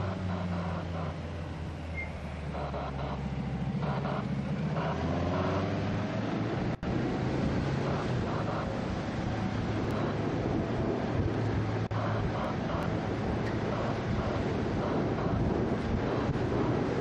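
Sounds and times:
vehicle engine humming: 0.0 - 17.0
wind noise: 4.8 - 17.0.

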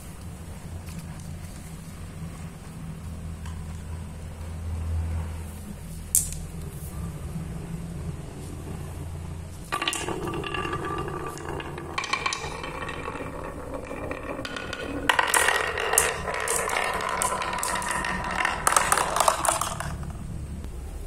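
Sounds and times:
balls clattering on wooden pegs: 6.1 - 6.5, 9.5 - 20.6
balls rolling in wooden groove: 9.4 - 20.6.

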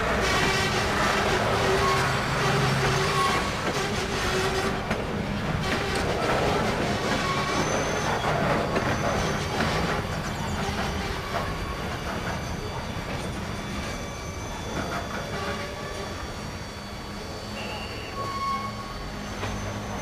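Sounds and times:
faint high wheel squeal: 0.0 - 20.0
train wheels rolling on rails: 0.0 - 20.0.

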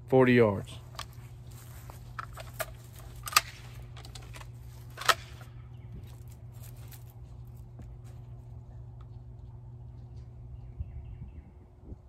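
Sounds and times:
steady low hum: 0.0 - 12.0
shotgun handling clicks and knocks: 0.9 - 1.2, 1.9 - 6.4.

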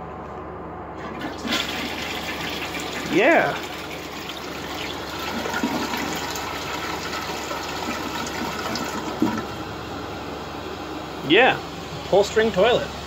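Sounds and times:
toilet flushing: 1.0 - 10.7.

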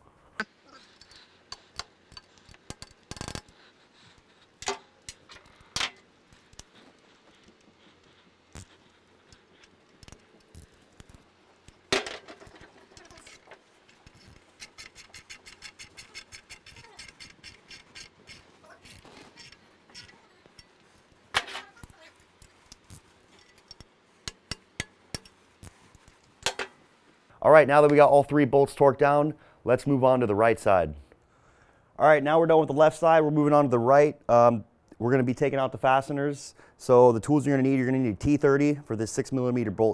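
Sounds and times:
ratchet clicking: 1.0 - 3.6, 13.0 - 20.8
metallic tool clink: 8.6 - 25.4.

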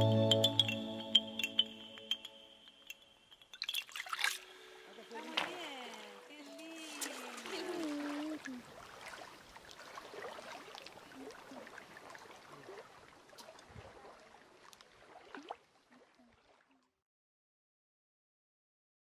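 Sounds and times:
water drips and plops: 0.3 - 17.0
water lapping over pebbles: 2.7 - 16.8.

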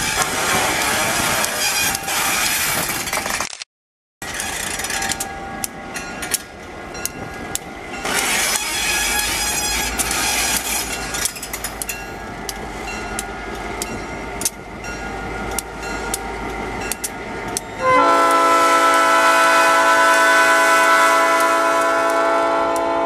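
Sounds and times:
wheels clicking over rail joints: 0.0 - 3.5, 4.2 - 23.0
locomotive air horn: 17.8 - 23.0.

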